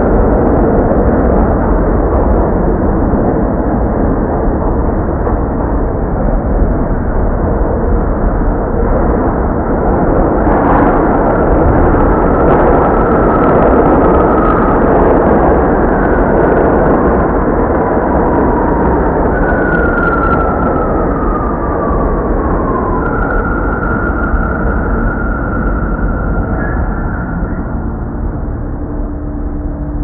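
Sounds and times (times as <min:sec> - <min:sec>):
subway train rumble and clatter: 0:00.0 - 0:30.0.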